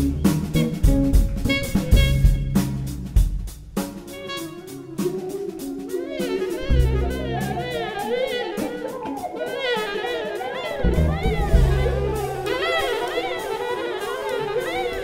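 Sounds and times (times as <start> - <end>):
low bass notes: 0.0 - 3.8, 6.6 - 7.8, 10.8 - 12.6
drum kit cymbal strokes: 0.0 - 15.0
wind instruments playing jazz melody: 0.0 - 15.0.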